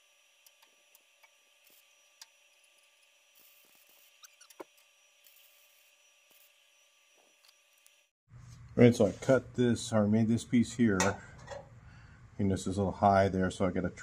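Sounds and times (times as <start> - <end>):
faint steady hum: 5.2 - 14.0.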